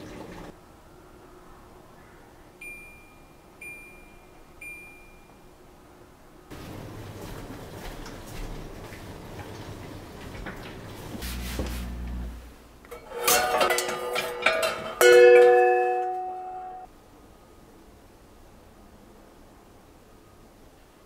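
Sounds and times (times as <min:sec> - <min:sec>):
cookware clinking on metal hooks: 0:12.9 - 0:16.9
ringing metallic clang: 0:12.9 - 0:16.9.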